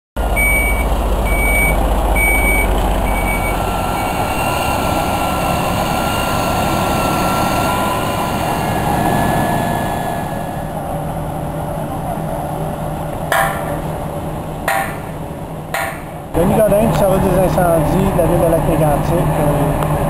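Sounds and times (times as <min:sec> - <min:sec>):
reversing alarm beeping: 0:00.2 - 0:10.6
truck engine rumbling: 0:00.2 - 0:20.0.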